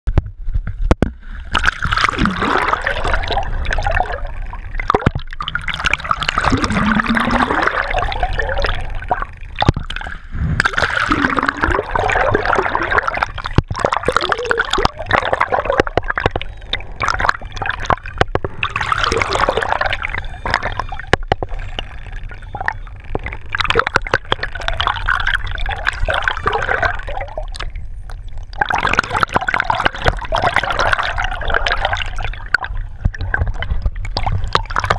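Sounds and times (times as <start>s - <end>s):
water rushing and gurgling: 1.1s - 34.9s.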